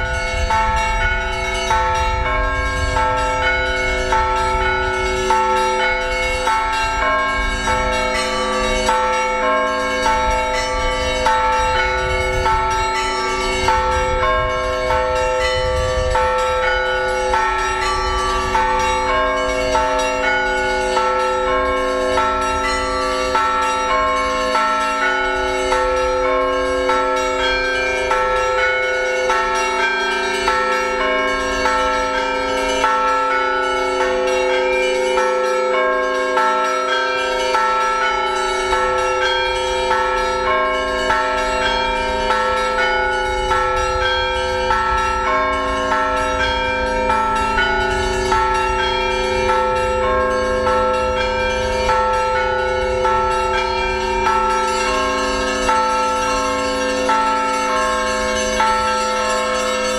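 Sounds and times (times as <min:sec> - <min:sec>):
church bells ringing: 0:00.0 - 0:59.9.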